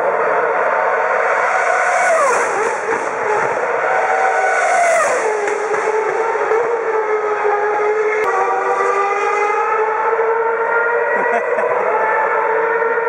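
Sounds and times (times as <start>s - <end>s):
racing cars passing at speed: 0.0s - 13.0s.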